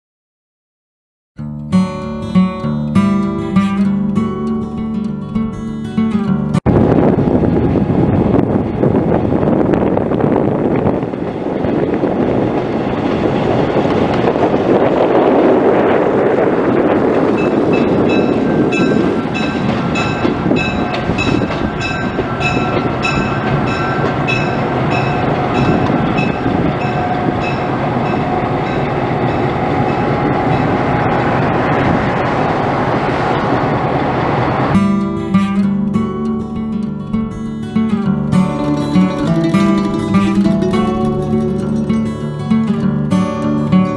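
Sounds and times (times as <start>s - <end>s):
diesel locomotive engines running: 6.1s - 43.8s
locomotive bell ringing: 17.2s - 31.7s, 37.2s - 43.9s.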